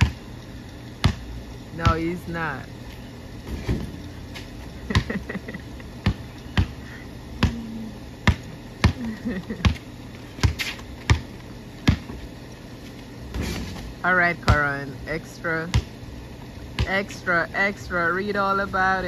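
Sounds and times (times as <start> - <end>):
basketball bouncing on concrete: 0.0 - 0.3, 1.0 - 2.2, 3.4 - 12.3, 15.6 - 16.0, 16.7 - 17.0.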